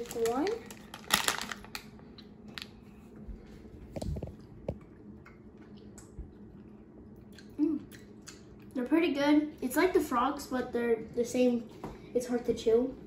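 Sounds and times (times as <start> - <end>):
plastic bag crinkling: 0.0 - 2.8
children chewing candy: 4.0 - 8.8.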